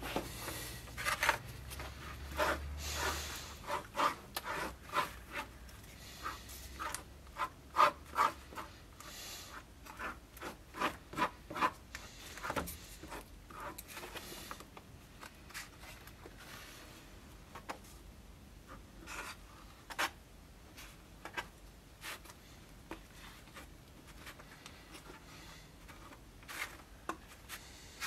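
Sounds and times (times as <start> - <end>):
wood sanded by hand: 1.9 - 5.5.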